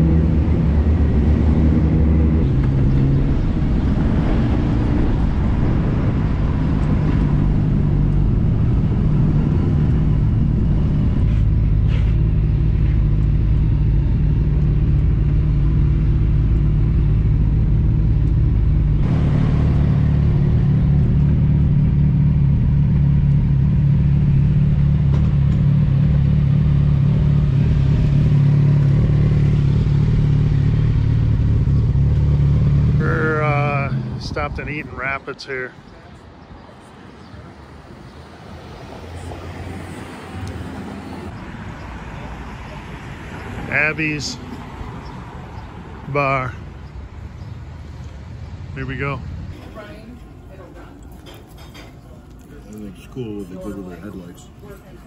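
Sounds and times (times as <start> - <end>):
motorcycle engines idling: 9.6 - 37.6.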